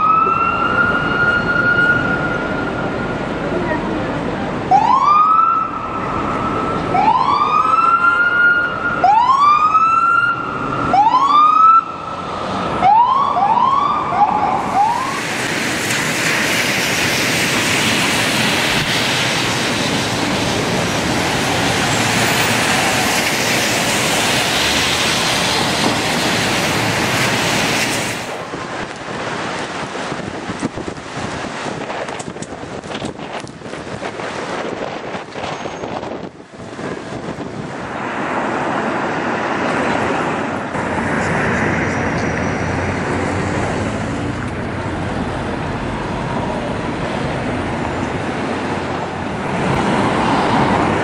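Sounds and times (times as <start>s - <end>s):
police siren whooping: 0.0s - 2.8s, 4.7s - 12.1s, 12.8s - 15.2s
street noise: 0.0s - 51.0s.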